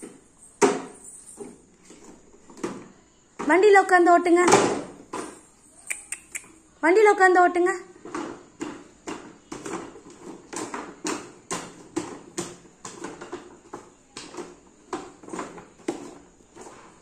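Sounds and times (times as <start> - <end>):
child's footsteps on tiled floor: 0.0 - 2.7.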